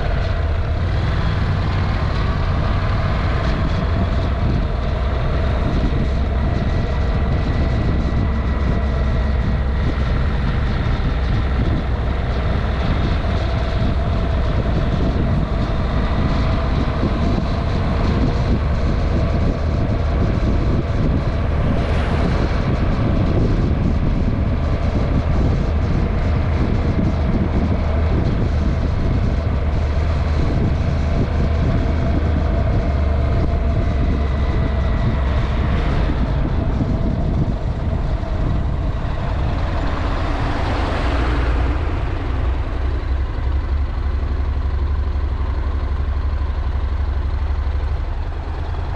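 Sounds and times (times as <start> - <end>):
vehicle engine and road noise: 0.0 - 48.9
wind on microphone: 0.0 - 48.9.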